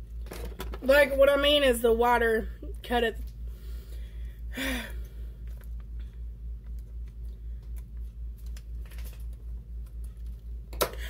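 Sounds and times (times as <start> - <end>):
low steady hum: 0.0 - 11.0
plastic piping bag crinkling: 7.9 - 10.4.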